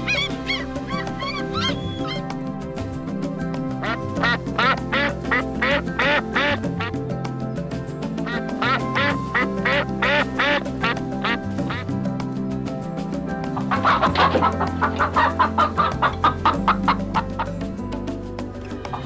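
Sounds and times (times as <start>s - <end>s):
background music: 0.0s - 19.0s
duck quacking: 3.8s - 6.9s, 8.3s - 11.9s, 13.6s - 17.3s.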